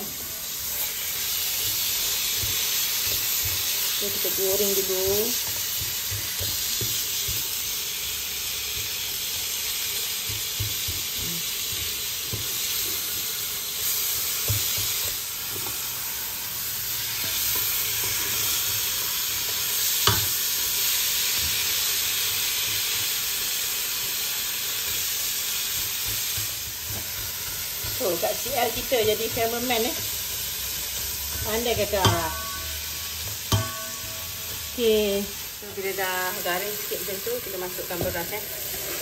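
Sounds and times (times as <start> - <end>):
meat sizzling in a pot: 0.0 - 39.0
spatula scraping: 38.1 - 39.0.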